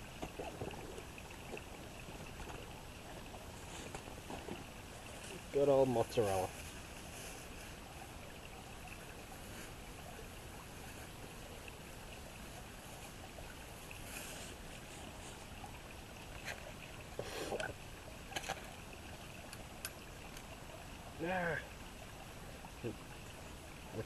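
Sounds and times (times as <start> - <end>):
outdoor background hiss: 0.0 - 24.0.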